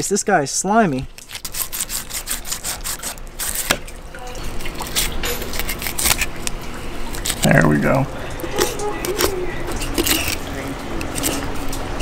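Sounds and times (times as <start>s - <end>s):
wet fish flesh squelching: 0.9s - 12.0s
knife scraping fish backbone: 1.2s - 3.8s, 4.6s - 6.4s, 7.2s - 7.5s, 8.6s - 11.6s.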